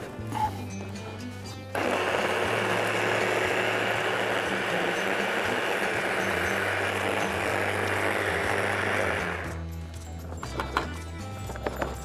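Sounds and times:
hand blender motor running: 0:01.8 - 0:09.6.

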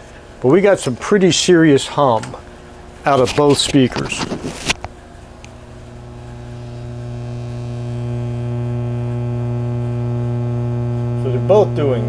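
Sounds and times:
amplifier hum through loudspeaker: 0:00.4 - 0:12.0.

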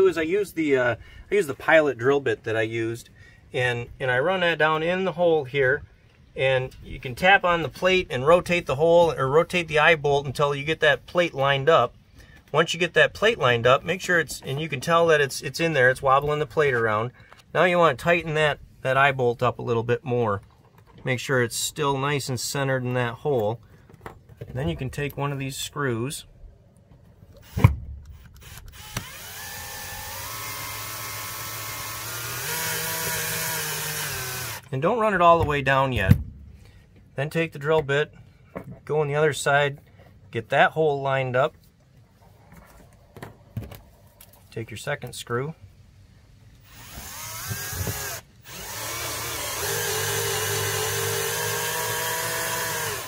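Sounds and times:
drill click: 0:27.4 - 0:34.7, 0:46.6 - 0:53.0
drill motor whine: 0:28.4 - 0:34.6, 0:46.6 - 0:53.0.

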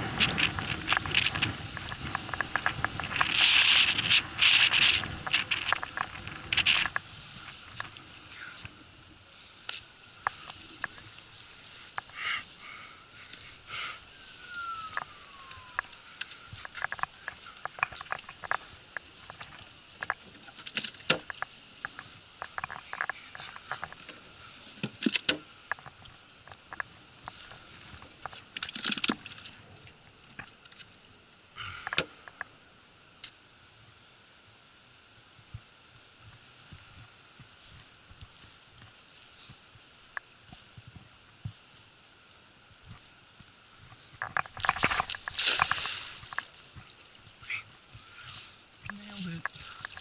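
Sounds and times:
thin whistle gliding down: 0:14.0 - 0:16.6.

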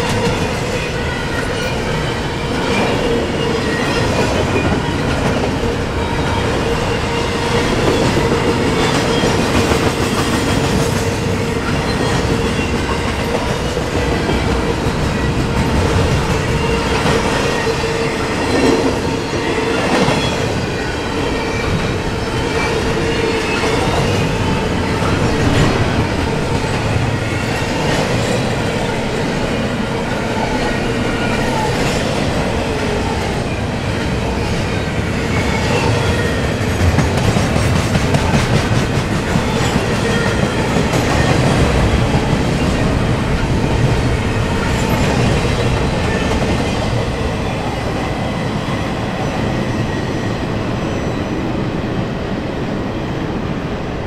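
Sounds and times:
train wheels clattering over rails: 0:30.1 - 0:50.4.

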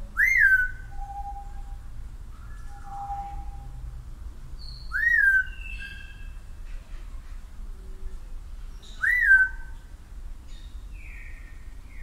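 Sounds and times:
soft low whistled notes: 0:00.0 - 0:04.0.

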